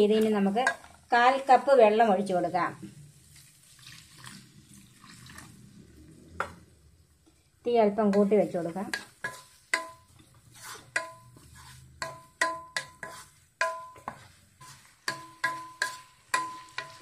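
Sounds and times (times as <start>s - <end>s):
wooden spatula knocking on pan: 12.0s - 14.2s.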